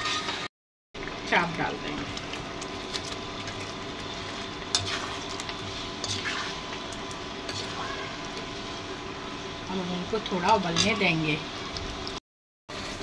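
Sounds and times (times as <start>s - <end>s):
steady sizzle: 0.0s - 13.0s
spatula stirring thick gravy: 2.1s - 9.0s.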